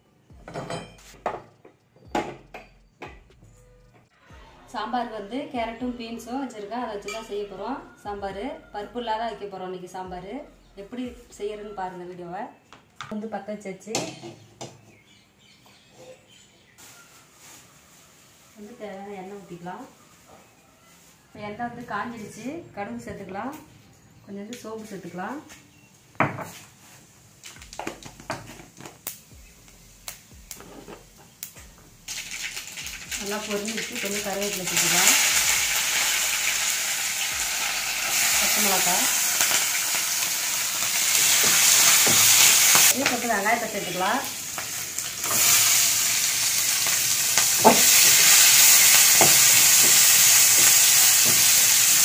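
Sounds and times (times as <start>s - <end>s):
seeds popping in hot oil: 27.4s - 52.0s.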